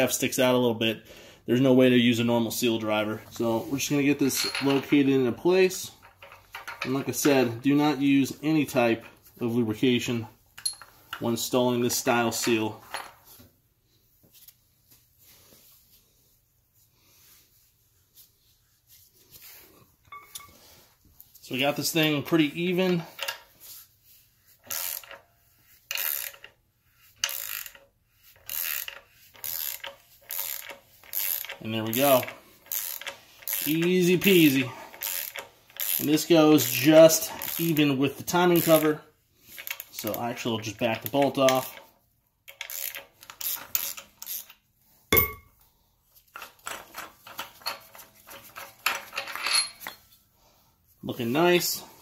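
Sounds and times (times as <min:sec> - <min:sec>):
metal tools clinking: 0:03.3 - 0:08.0, 0:10.6 - 0:13.4, 0:20.1 - 0:20.7, 0:46.3 - 0:50.2
hand ratchet clicking: 0:24.6 - 0:25.2, 0:25.9 - 0:26.6, 0:27.2 - 0:37.9, 0:38.5 - 0:40.2, 0:42.5 - 0:44.6.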